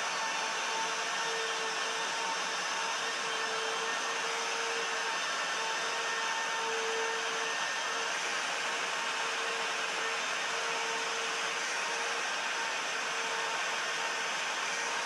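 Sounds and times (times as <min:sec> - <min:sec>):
power tool motor whirring: 0:00.0 - 0:15.0.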